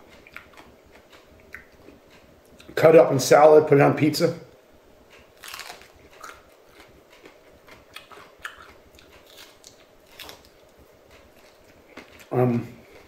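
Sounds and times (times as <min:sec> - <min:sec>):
person chewing crisp chili: 0:00.1 - 0:02.8, 0:05.2 - 0:13.0.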